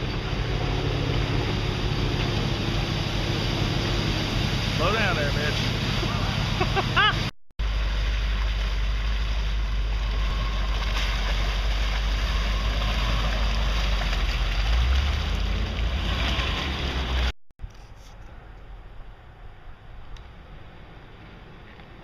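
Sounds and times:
engine running under load: 0.0 - 17.3
mud and tyre noise: 0.0 - 22.0.

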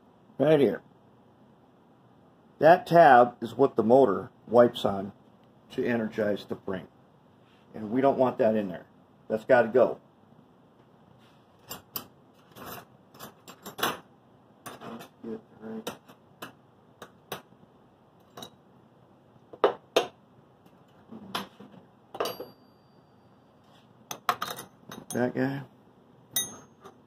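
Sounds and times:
small metal tools clinking: 26.4 - 27.0.

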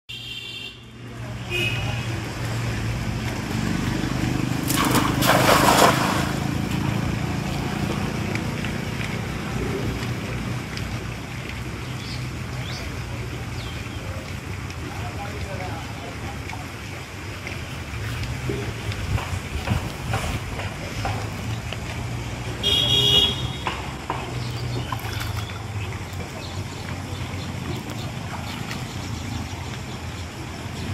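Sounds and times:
net splashing into water: 4.5 - 7.1, 24.8 - 26.3.

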